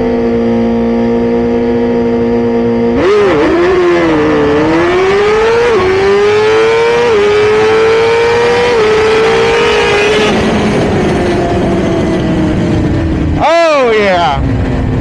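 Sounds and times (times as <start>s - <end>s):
motorcycle engine at full throttle: 0.0s - 15.0s
wind rush: 8.2s - 15.0s.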